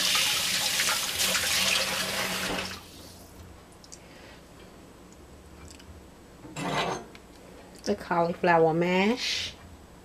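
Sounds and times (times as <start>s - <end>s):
kitchen tap running: 0.0s - 2.8s.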